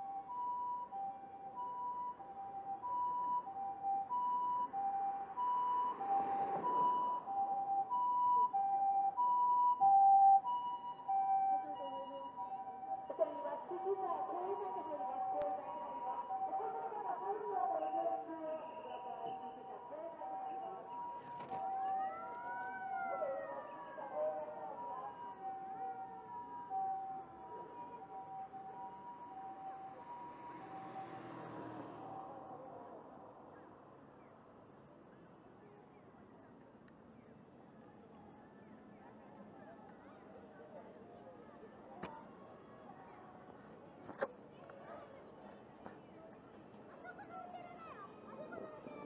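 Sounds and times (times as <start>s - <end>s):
two-tone ambulance siren: 0.0s - 34.1s.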